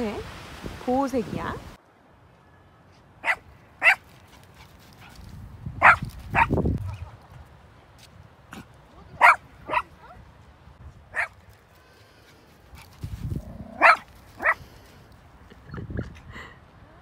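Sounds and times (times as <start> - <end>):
small dog yapping: 13.7 - 14.6.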